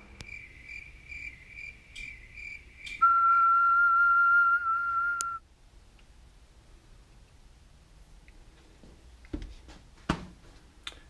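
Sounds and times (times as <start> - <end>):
cricket chirping faintly: 0.0 - 5.4
steady test tone beep: 2.9 - 5.4.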